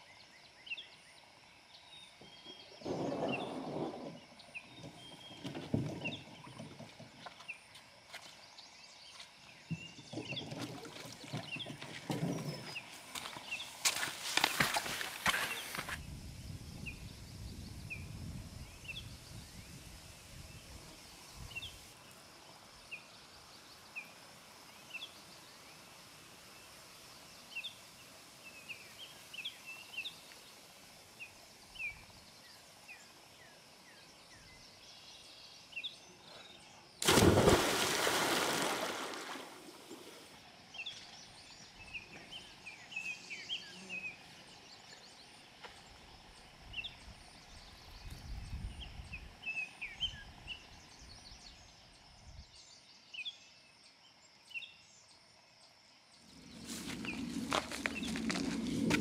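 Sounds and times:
splash into lake: 0:37.0 - 0:40.4
small birds chirping: 0:40.0 - 0:59.0.

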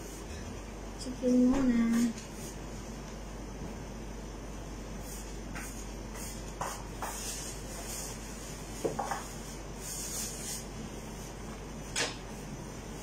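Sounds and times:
plastic gloves rustling: 0:05.1 - 0:11.6.

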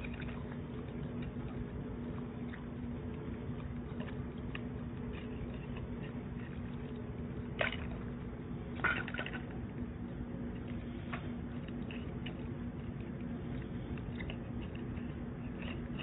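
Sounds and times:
dogs lapping water from metal bowl: 0:00.0 - 0:09.8
low hum: 0:00.0 - 0:16.0.

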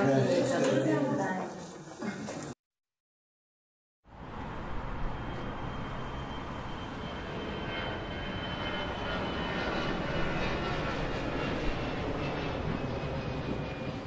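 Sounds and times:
thin high whine: 0:04.4 - 0:10.4.

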